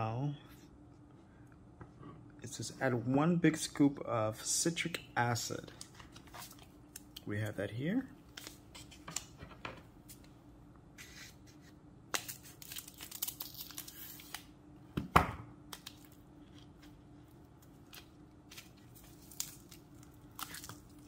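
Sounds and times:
packet tearing and crinkling: 0:12.2 - 0:14.5, 0:17.8 - 0:21.0.

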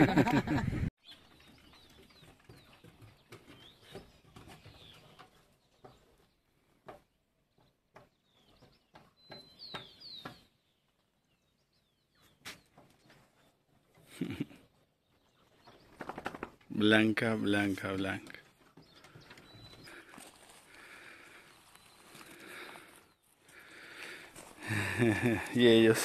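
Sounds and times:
small birds chirping: 0:01.0 - 0:26.0.

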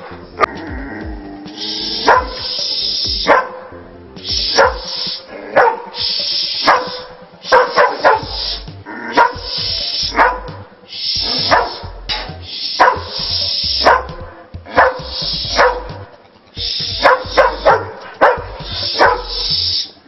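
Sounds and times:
background music: 0:00.0 - 0:20.0
dog barking: 0:02.0 - 0:02.6, 0:03.2 - 0:03.7, 0:04.5 - 0:05.0, 0:05.6 - 0:06.0, 0:06.6 - 0:08.4, 0:09.2 - 0:09.5, 0:10.1 - 0:10.6, 0:11.2 - 0:11.8, 0:12.8 - 0:16.0, 0:17.0 - 0:19.6.

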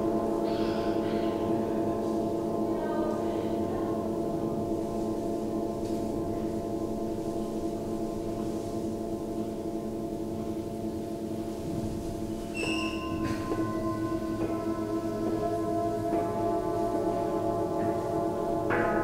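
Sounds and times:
singing bowls ringing: 0:12.4 - 0:19.0.

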